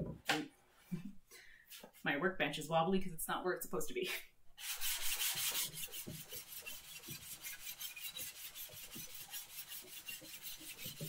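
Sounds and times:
plane sole scrubbing on sandpaper: 4.6s - 11.0s.

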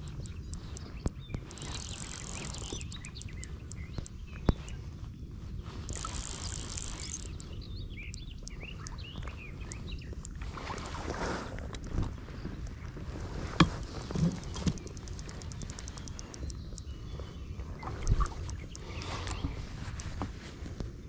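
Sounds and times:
birdsong: 0.0s - 20.3s
wind rumble on microphone: 0.0s - 21.0s
fishing reel drag buzzing: 1.4s - 4.1s, 5.8s - 7.5s, 13.9s - 16.5s.

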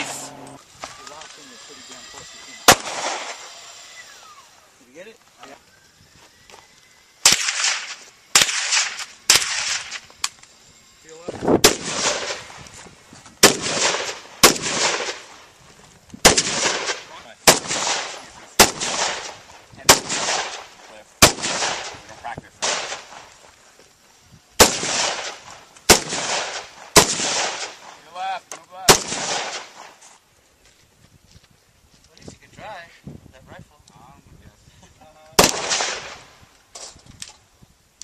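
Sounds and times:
rifle shots echoing: 2.6s - 3.5s, 7.2s - 10.0s, 11.6s - 12.5s, 13.4s - 15.4s, 16.2s - 23.3s, 24.6s - 28.0s, 28.9s - 30.0s, 35.4s - 36.3s.

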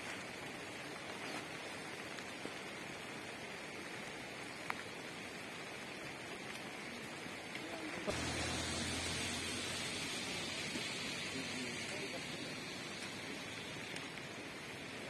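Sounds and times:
light rain falling: 0.0s - 15.0s
low hum: 8.1s - 14.9s.

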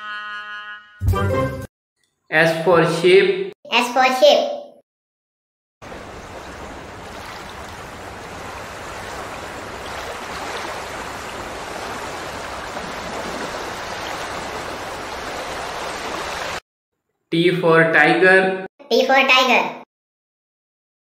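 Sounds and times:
water rushing: 5.8s - 16.6s.

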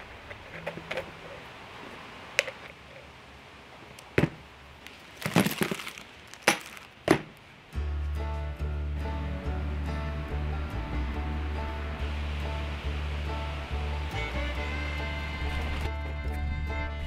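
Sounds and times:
plastic bag crinkling: 4.8s - 7.4s.

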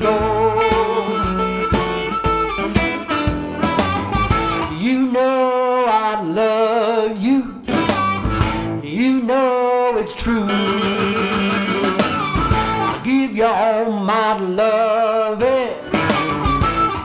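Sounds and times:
man singing: 0.0s - 1.8s, 4.6s - 17.0s
electric guitar shuffle: 0.0s - 5.8s, 7.6s - 8.8s, 10.3s - 13.3s, 15.8s - 17.0s.

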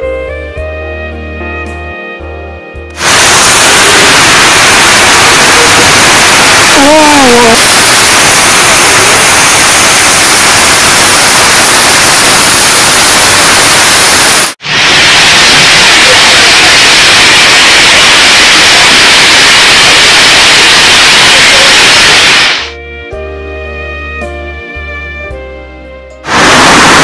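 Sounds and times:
heavy rain pouring: 3.0s - 21.7s, 26.3s - 27.0s.

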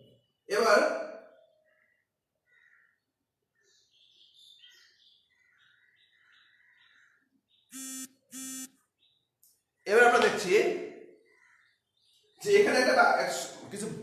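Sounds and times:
buzzing electronic beep: 7.7s - 8.7s.

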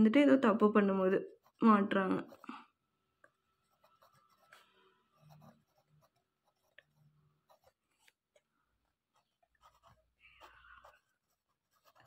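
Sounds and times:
pen scratching on paper: 1.2s - 2.6s, 3.6s - 8.2s, 9.1s - 12.0s.

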